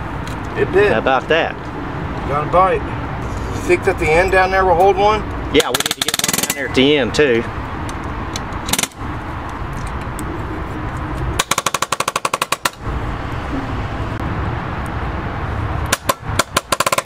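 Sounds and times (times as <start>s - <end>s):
palm nailer hammering nail: 5.6s - 6.6s, 11.4s - 12.8s, 15.9s - 17.0s.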